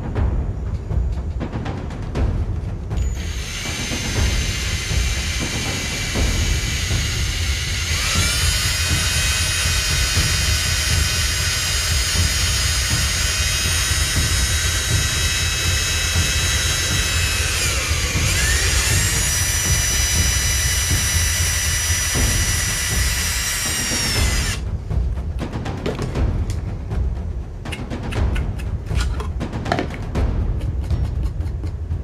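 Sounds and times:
cordless drill whining through wood: 3.0s - 24.6s.

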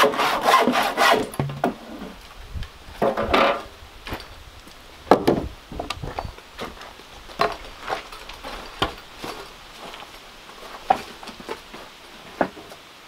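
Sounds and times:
handsaw cutting wood: 0.0s - 1.4s
wooden boards knocking: 1.3s - 1.8s, 3.0s - 3.6s, 5.1s - 5.9s.

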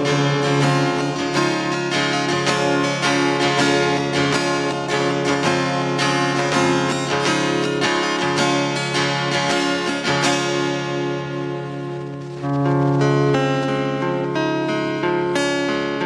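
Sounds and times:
cajon beat: 0.0s - 15.7s
acoustic guitar strumming: 0.0s - 16.0s.

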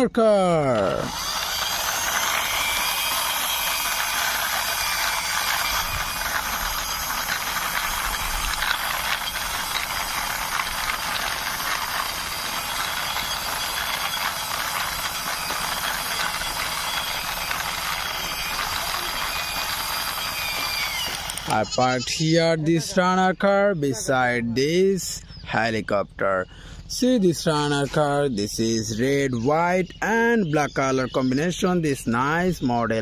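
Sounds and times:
toy car clicking rattle on concrete: 0.6s - 22.0s.

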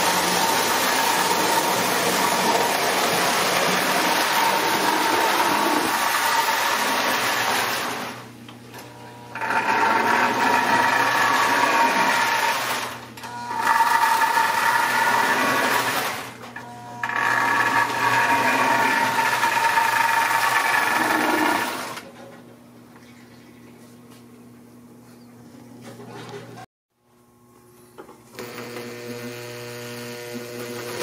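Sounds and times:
toy train motor whine: 16.9s - 22.0s, 28.3s - 31.0s.

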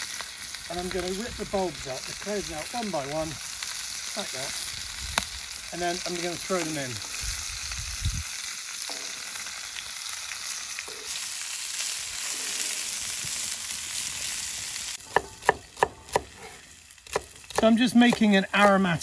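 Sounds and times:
meat sizzling in a pan: 0.0s - 19.0s
knife chopping on wooden board: 15.1s - 16.4s, 17.1s - 18.7s.

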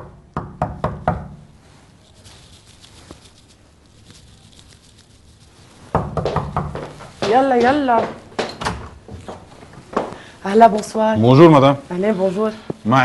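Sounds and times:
knuckles knocking on wooden door: 5.9s - 8.6s.

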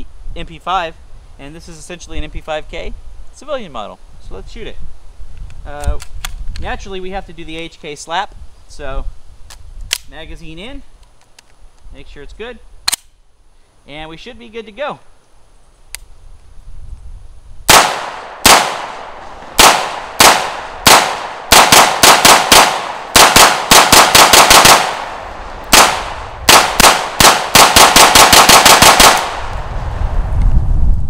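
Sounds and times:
pistol shots: 17.7s - 29.5s.

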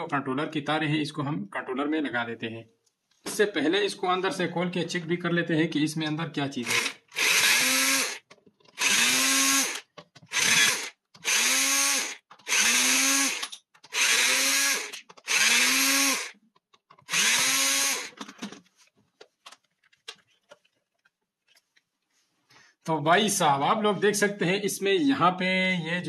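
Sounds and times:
power drill unscrewing screws: 6.6s - 18.7s.

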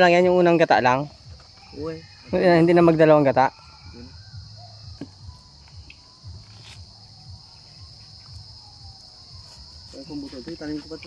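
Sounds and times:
crickets droning: 0.0s - 11.0s.

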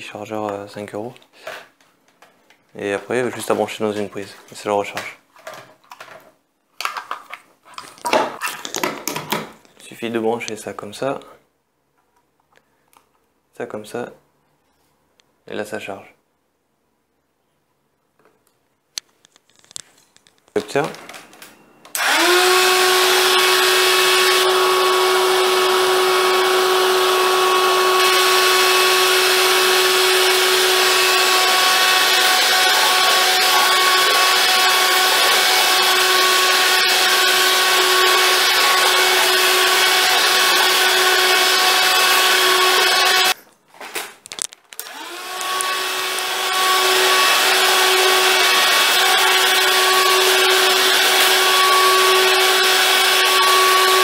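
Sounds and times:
vacuum cleaner motor whining: 20.8s - 43.4s, 44.8s - 54.0s.

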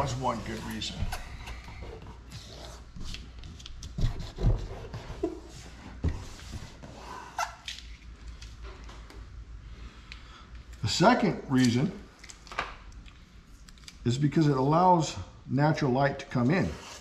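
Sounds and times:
hands rubbing tape on door: 0.0s - 8.4s
steady low hum: 0.0s - 17.0s.

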